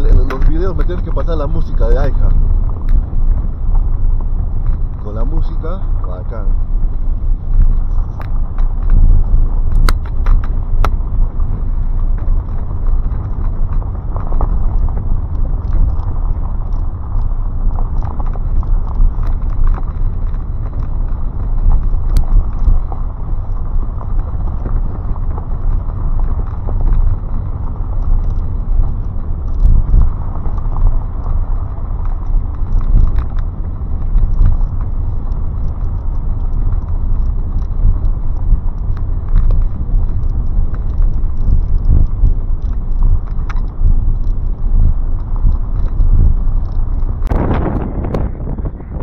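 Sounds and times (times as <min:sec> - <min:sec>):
car engine and tyre rumble: 0:00.0 - 0:49.0.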